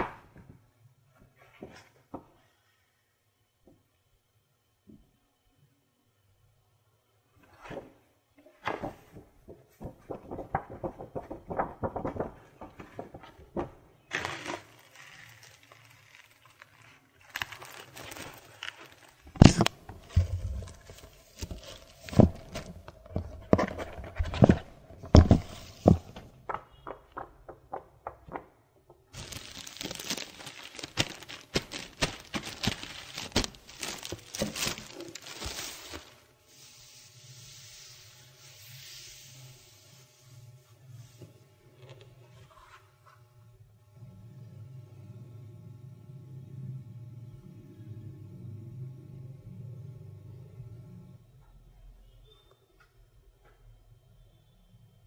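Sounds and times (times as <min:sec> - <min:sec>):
paper rustling: 0:08.8 - 0:26.4, 0:29.1 - 0:37.0
plastic wrap crackling: 0:14.0 - 0:27.3, 0:29.1 - 0:36.3
knocks of box handling: 0:19.4 - 0:28.5.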